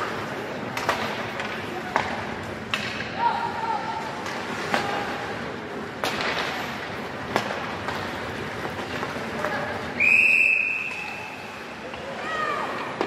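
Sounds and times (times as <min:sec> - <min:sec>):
hockey stick hitting puck: 0:00.0 - 0:03.2, 0:04.2 - 0:05.2, 0:06.0 - 0:09.6.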